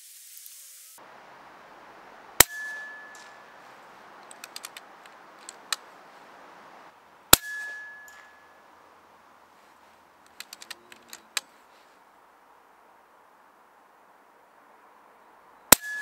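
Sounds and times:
air rifle shots: 2.4 - 8.5
light clicks: 3.1 - 6.8, 10.2 - 11.9.

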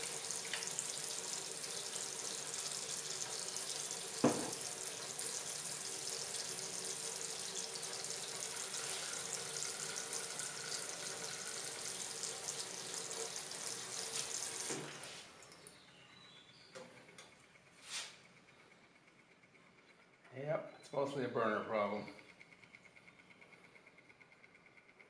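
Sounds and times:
tap running into sink: 4.2 - 4.7.

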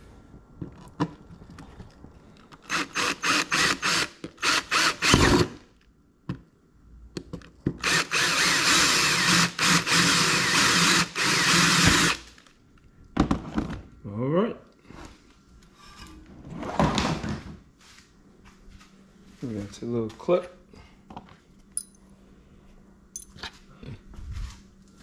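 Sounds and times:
power drill drilling: 2.7 - 5.6, 7.8 - 12.4.

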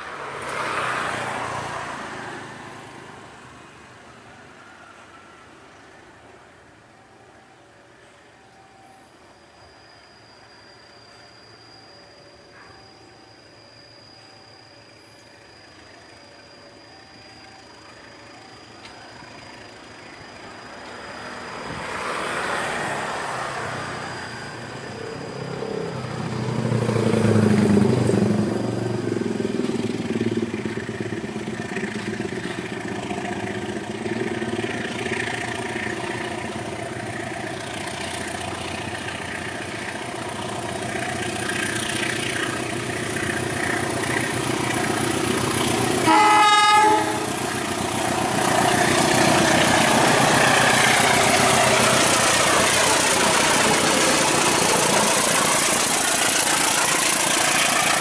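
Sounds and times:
passenger train running: 0.0 - 58.0
train horn blast: 46.0 - 47.5.

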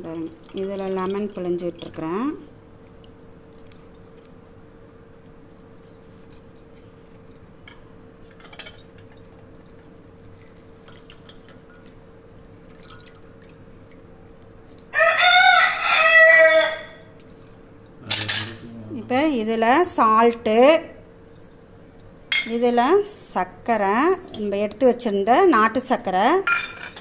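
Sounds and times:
juice dripping into metal bowl: 0.0 - 4.4, 8.2 - 14.9
rooster crowing: 14.9 - 17.1.

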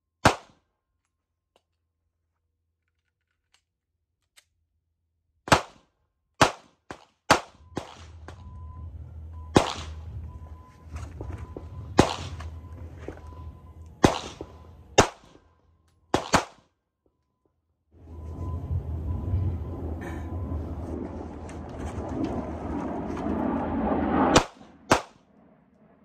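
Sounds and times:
pistol shots: 0.2 - 0.6, 5.5 - 8.2, 9.5 - 10.1, 11.9 - 13.2, 14.0 - 15.4, 16.1 - 16.7, 24.3 - 25.2.

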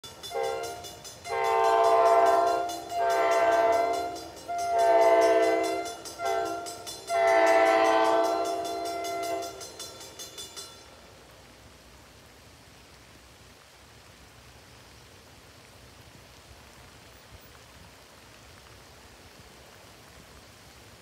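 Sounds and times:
faint rain hiss: 0.0 - 21.0
train horn blasts: 0.1 - 9.9.

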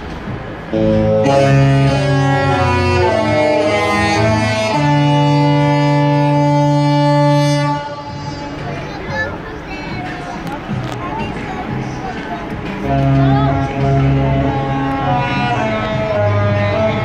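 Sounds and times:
ship horn playing a tune: 0.7 - 8.9, 12.8 - 17.0.

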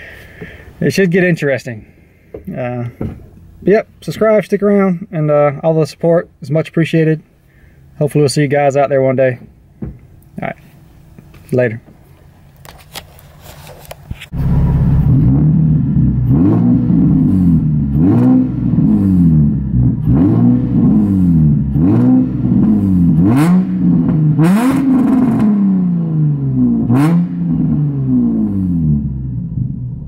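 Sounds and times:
car engine idling and revving: 0.0 - 5.6, 13.8 - 30.0.

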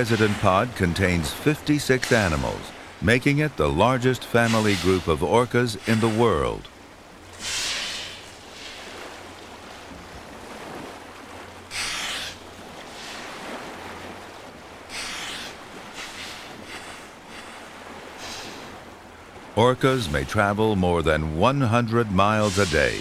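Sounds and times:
water washing: 0.0 - 23.0
wind: 0.0 - 23.0
whales exhaling sharp hissing blows: 4.4 - 5.1, 7.4 - 8.9, 11.7 - 13.3, 18.2 - 18.7.

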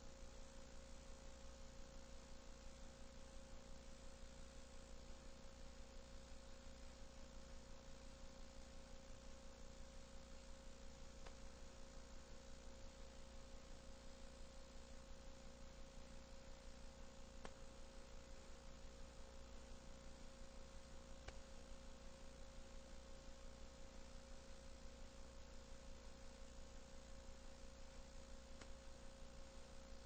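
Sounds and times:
electrical hum: 0.0 - 30.0
faint tape hiss: 0.0 - 30.0
faint clicks: 11.2 - 11.4, 17.4 - 17.6, 21.2 - 21.5, 28.6 - 28.8.

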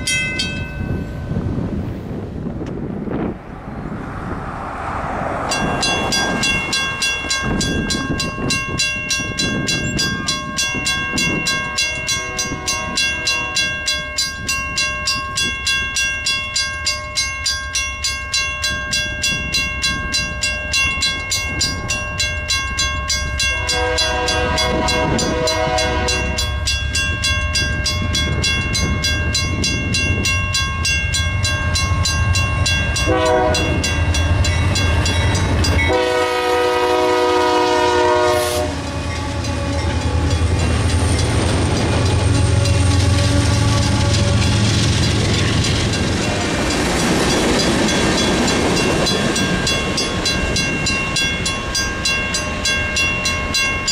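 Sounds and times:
crossing warning bell ringing: 0.0 - 1.8, 3.9 - 53.9
train engines rumbling: 0.0 - 53.9
locomotive air horn blasts: 12.1 - 13.8, 23.5 - 26.5, 33.0 - 33.9, 35.8 - 40.3, 42.4 - 44.5.

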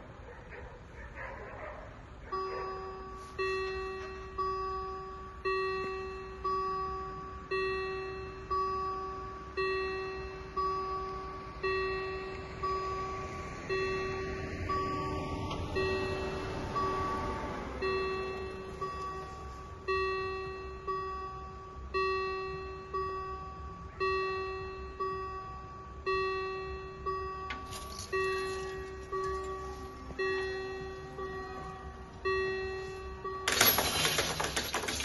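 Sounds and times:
level crossing bells ringing: 2.3 - 35.0.

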